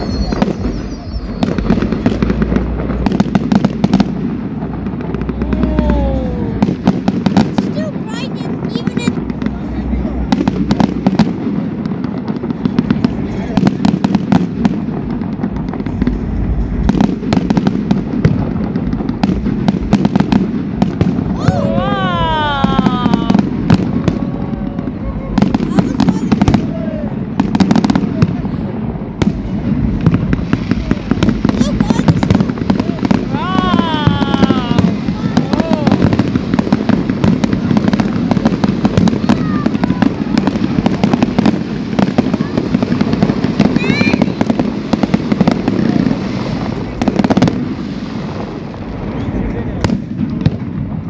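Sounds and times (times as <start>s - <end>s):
low rumble: 0.0s - 7.4s, 8.5s - 13.9s, 14.5s - 39.0s
fireworks bangs and crackles: 0.0s - 51.0s.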